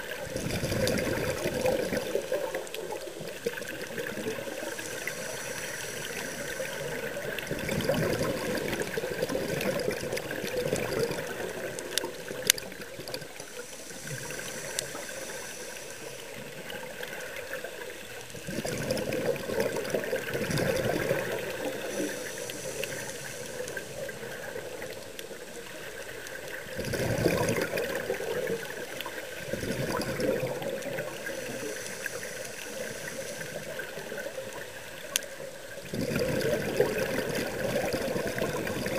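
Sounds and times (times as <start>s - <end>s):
exhaled bubbles rushing: 0.0s - 25.1s, 25.7s - 31.9s, 35.8s - 38.9s
diver breathing through regulator: 4.5s - 9.4s, 13.3s - 17.0s, 20.5s - 24.8s, 29.8s - 34.2s.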